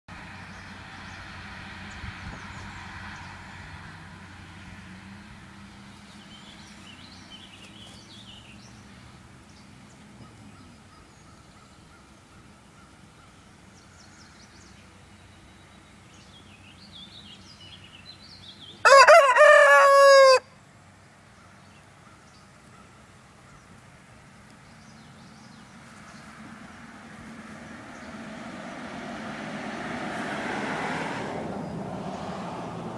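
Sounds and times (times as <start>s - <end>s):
rooster crowing: 18.8s - 20.5s.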